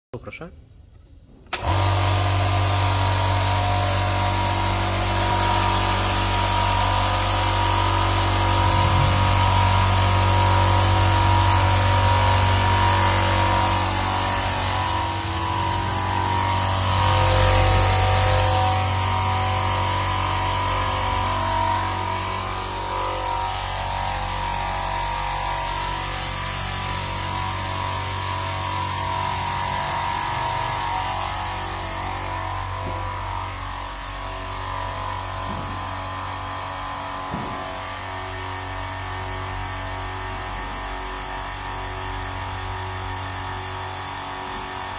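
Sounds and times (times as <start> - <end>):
air compressor running: 1.2 - 44.9.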